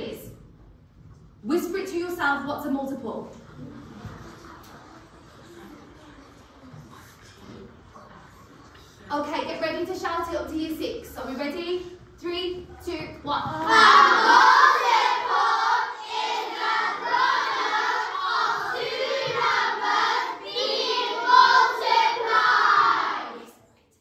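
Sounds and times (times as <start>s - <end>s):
children chanting in unison: 13.6s - 23.6s.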